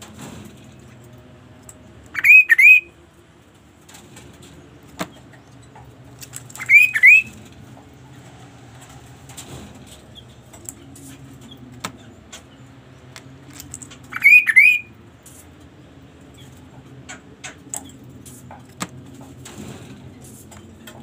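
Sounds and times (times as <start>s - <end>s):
songbird whistled calls: 2.1s - 2.9s, 6.6s - 7.4s, 14.1s - 14.9s.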